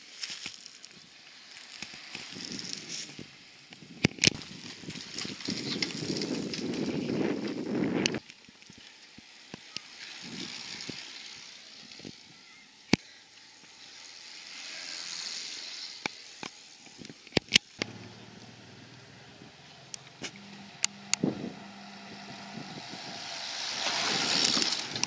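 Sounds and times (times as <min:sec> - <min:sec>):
bicycle tyres and drivetrain whirring: 0:00.0 - 0:25.0
low steady engine hum: 0:17.8 - 0:25.0
sharp clicks: 0:19.9 - 0:21.3.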